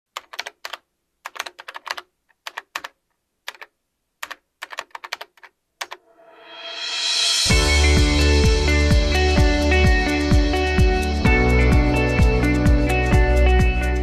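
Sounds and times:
keyboard keys clicking: 0.2s - 6.0s.

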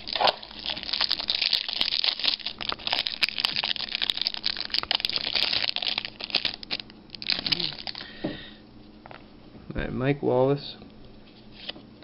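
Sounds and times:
plastic wrapping crinkling: 0.0s - 8.2s.

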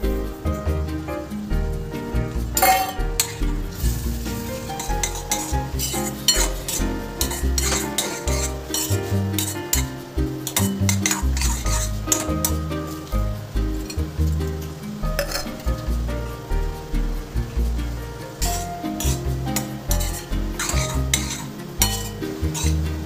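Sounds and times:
background music with bass: 0.0s - 23.0s
light sizzle: 0.0s - 23.0s
spoon scraping a steel pot: 4.7s - 12.6s, 15.2s - 15.6s, 18.4s - 23.0s.

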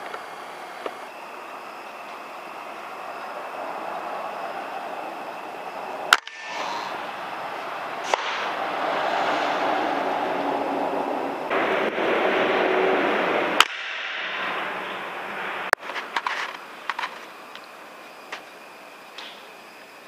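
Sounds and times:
steady rushing noise: 0.0s - 18.0s
air rifle shots: 6.1s - 7.3s, 7.9s - 8.6s, 13.5s - 14.8s.

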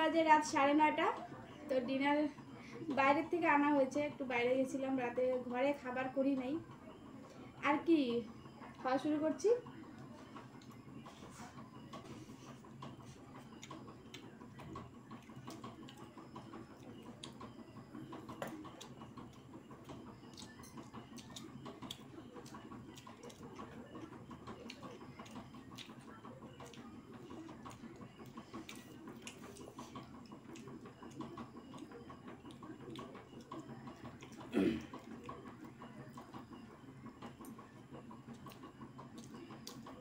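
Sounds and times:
people chewing and lip smacking: 9.7s - 40.0s.

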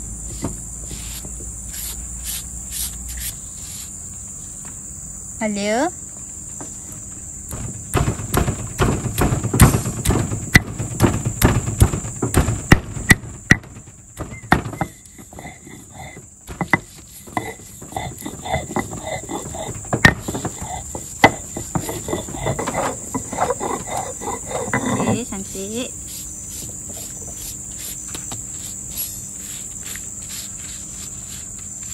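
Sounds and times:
insects chirring: 0.0s - 31.9s
stone roller crushing on stone slab: 7.5s - 25.8s.

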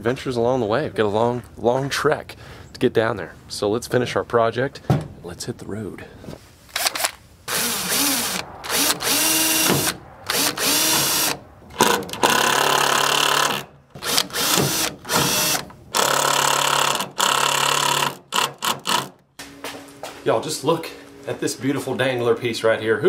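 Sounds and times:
cordless drill driving screws: 6.8s - 19.2s.

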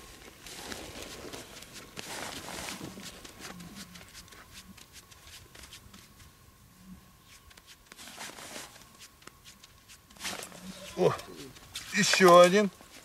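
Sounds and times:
fishing reel clicks and rustles: 10.1s - 13.0s.

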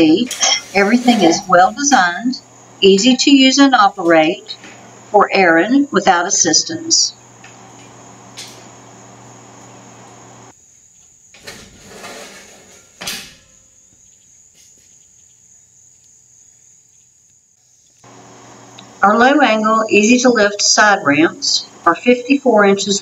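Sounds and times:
crickets chirping: 0.0s - 23.0s
metal divider clunk: 11.4s - 13.6s.

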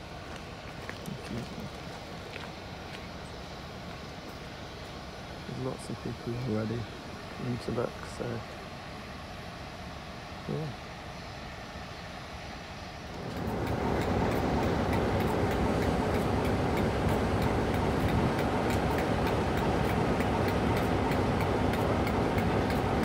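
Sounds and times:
diesel locomotive engine idling: 0.0s - 23.0s
light regular ticking: 13.1s - 23.0s.

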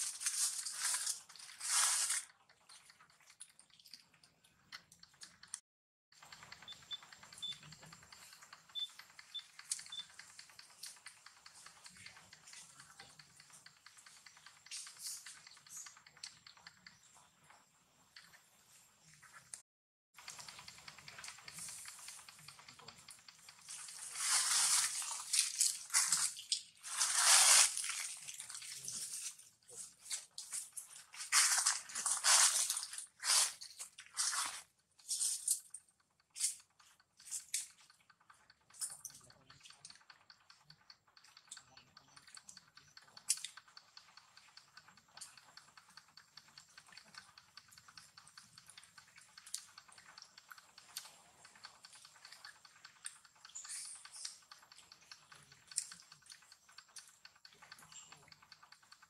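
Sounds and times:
rustling and crackling leaves: 0.0s - 2.3s, 23.7s - 35.5s
faint irregular small clicks: 0.0s - 5.6s, 6.2s - 19.6s, 20.2s - 59.0s.

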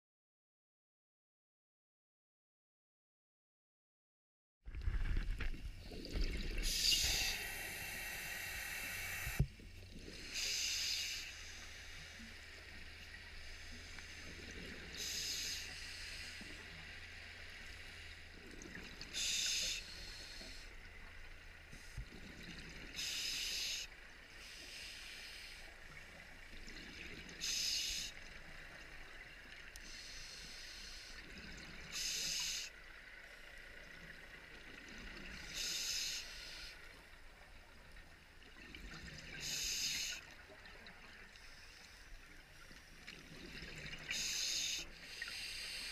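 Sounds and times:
diver breathing through regulator: 6.6s - 9.4s, 44.1s - 45.9s.

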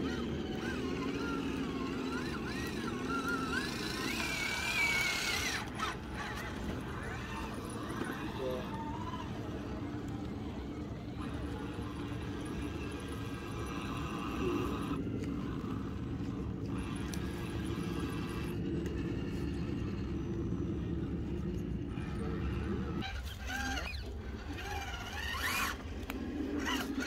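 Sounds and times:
electric motor whining: 0.0s - 27.0s.

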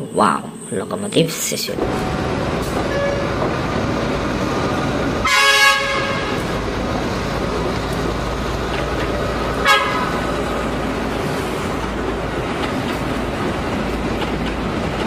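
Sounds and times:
locomotive engine running: 1.8s - 15.0s
train horn: 2.9s - 3.4s, 5.2s - 6.6s, 9.6s - 10.3s.

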